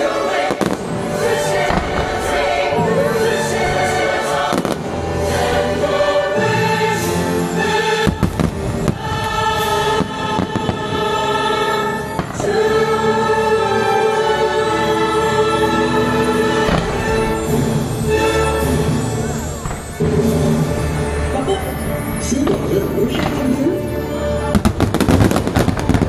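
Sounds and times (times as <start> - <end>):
fireworks bursting: 0.0 - 6.3, 7.8 - 13.0, 16.4 - 23.7, 24.4 - 26.0
choir and orchestra chords: 0.0 - 26.0.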